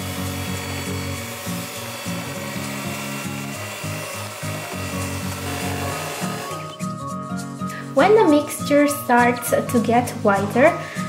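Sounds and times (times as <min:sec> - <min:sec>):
electric hand mixer whirring: 0:00.0 - 0:06.8
background music: 0:00.0 - 0:11.0.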